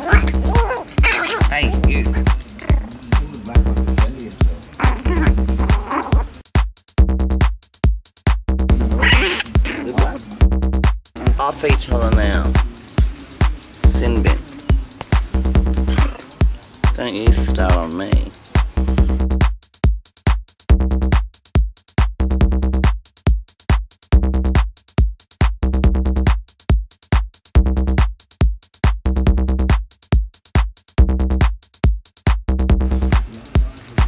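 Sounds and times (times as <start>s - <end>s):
electronic dance music: 0.0s - 6.4s, 11.2s - 18.8s.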